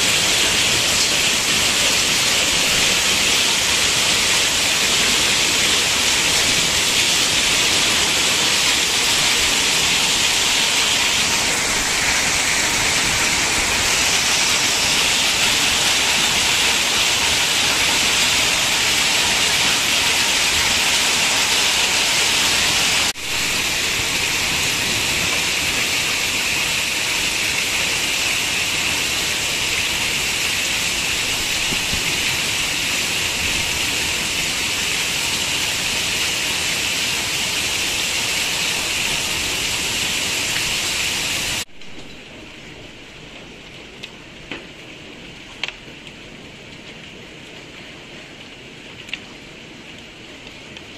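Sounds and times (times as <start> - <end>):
hail and rain pelting street: 0.0 - 50.9.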